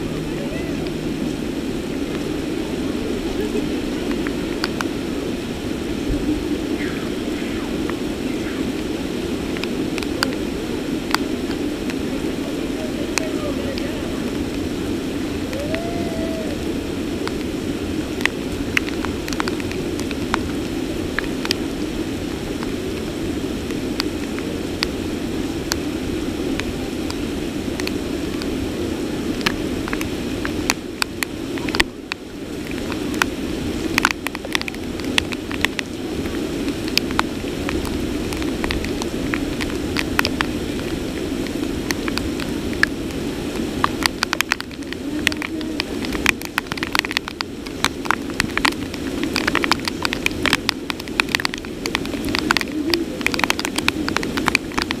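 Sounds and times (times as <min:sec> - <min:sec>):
heavy rain: 0:00.0 - 0:55.0
raindrops ticking close by: 0:00.0 - 0:55.0.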